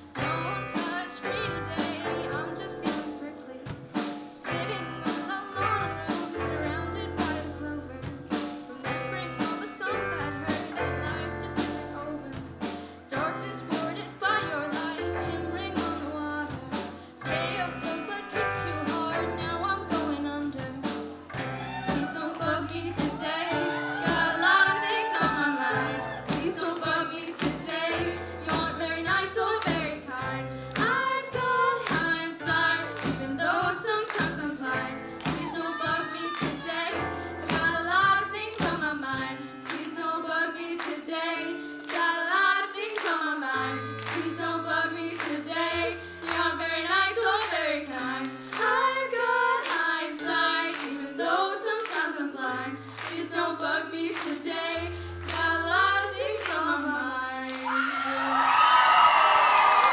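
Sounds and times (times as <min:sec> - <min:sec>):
live rock band: 0:00.0 - 0:51.0
young voices singing together: 0:04.3 - 0:59.9
hand claps: 0:24.7 - 0:28.6, 0:34.0 - 0:34.5, 0:35.2 - 0:35.6, 0:39.6 - 0:40.0, 0:41.8 - 0:42.1, 0:42.8 - 0:43.3, 0:44.0 - 0:44.3, 0:45.1 - 0:45.4, 0:46.2 - 0:46.6, 0:50.7 - 0:51.0, 0:51.7 - 0:52.2, 0:52.9 - 0:53.2, 0:54.1 - 0:54.4.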